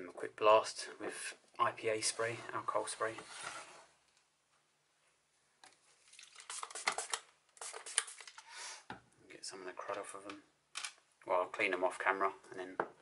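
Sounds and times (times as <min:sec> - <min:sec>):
aerosol can spraying: 0:06.4 - 0:08.4.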